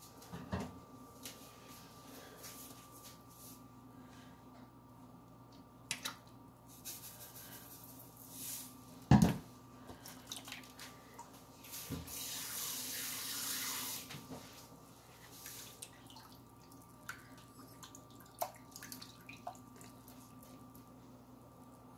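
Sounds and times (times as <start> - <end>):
water running from a tap: 12.1 - 14.0.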